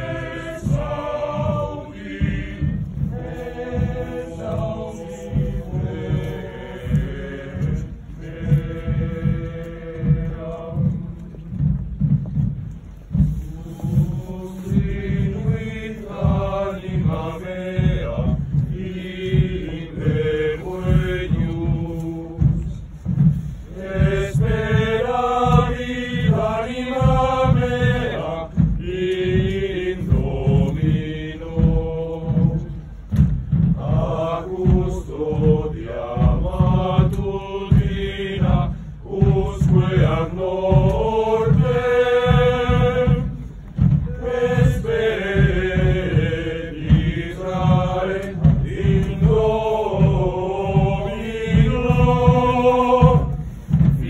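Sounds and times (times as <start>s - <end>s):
men chanting a hymn in unison: 0.0s - 11.3s, 13.5s - 22.8s, 23.7s - 54.0s.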